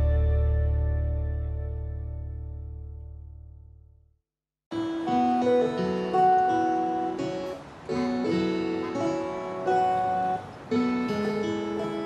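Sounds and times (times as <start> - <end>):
acoustic guitar plucked melody: 4.7 - 12.0.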